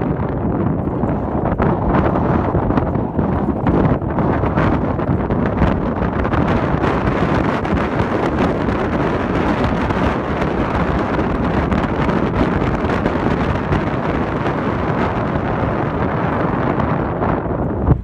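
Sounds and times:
wind buffeting microphone: 0:00.0 - 0:18.0.

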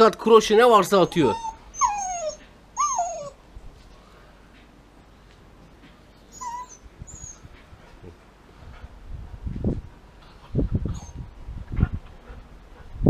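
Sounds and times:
puppy whining: 0:00.6 - 0:03.4, 0:06.3 - 0:07.6, 0:10.8 - 0:11.3.

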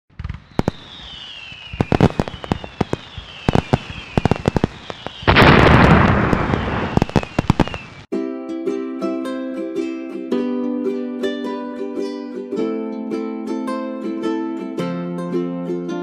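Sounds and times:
falling firework whistles: 0:00.1 - 0:08.1
firecracker bangs: 0:00.1 - 0:08.1
firework crackling burst: 0:00.1 - 0:08.1.

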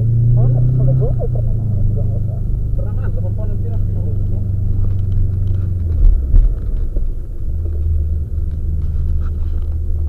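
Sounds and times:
heavy low thumps: 0:00.0 - 0:08.8
car engine rumble: 0:00.0 - 0:10.0.

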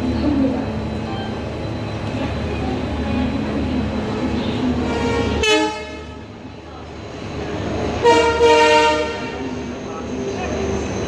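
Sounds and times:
train rumbling: 0:00.0 - 0:11.0
train horn blast: 0:04.8 - 0:06.2, 0:08.0 - 0:09.5.

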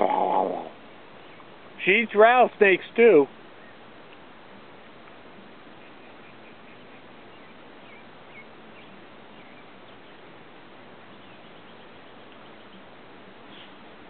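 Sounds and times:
outdoor background hiss: 0:00.0 - 0:14.0
faint bird chirps: 0:03.5 - 0:05.0, 0:05.7 - 0:14.0.

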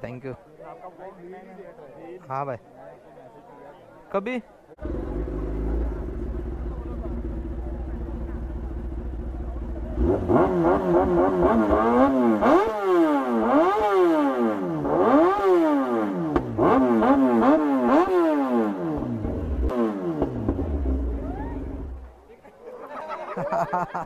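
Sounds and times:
motorcycle engine revving: 0:04.8 - 0:22.2.

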